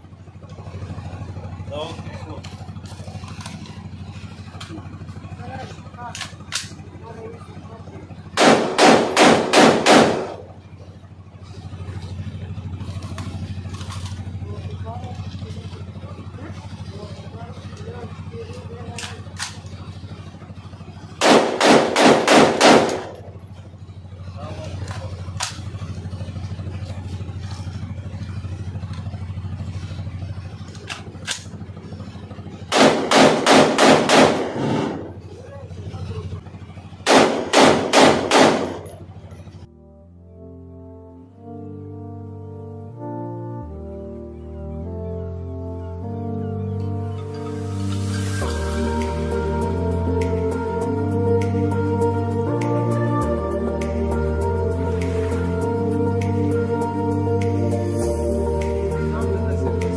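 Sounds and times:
steady low hum: 0.0 - 59.9
rifle shots echoing: 8.4 - 10.5, 21.2 - 23.3, 32.7 - 35.2, 37.0 - 39.0.

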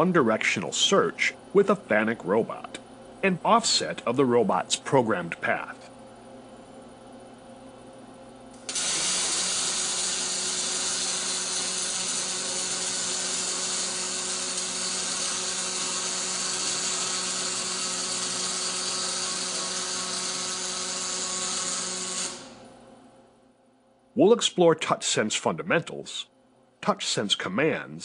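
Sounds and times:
welding arc hissing: 8.6 - 22.6.

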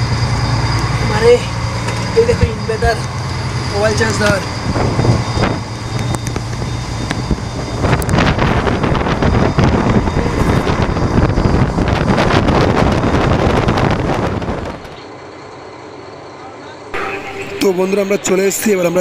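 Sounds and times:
wind buffeting microphone: 0.0 - 15.0
boat engine hum: 0.0 - 19.0.

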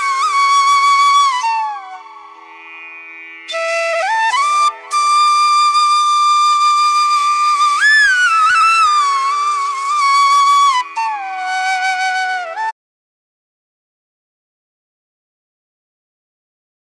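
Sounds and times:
flute playing long notes: 0.0 - 2.8, 3.5 - 12.8.

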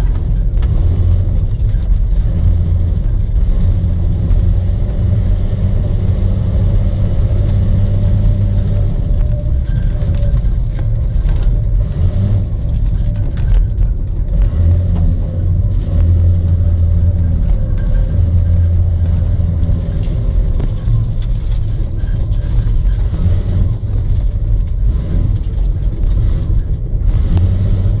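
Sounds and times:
car engine drone from inside cab: 0.0 - 28.0
road noise: 0.0 - 28.0.

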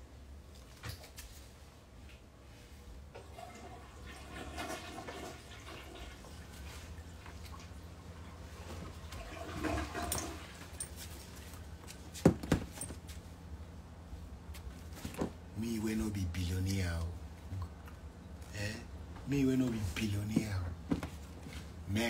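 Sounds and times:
clothes and bags rustling: 8.4 - 15.5, 18.3 - 21.9.

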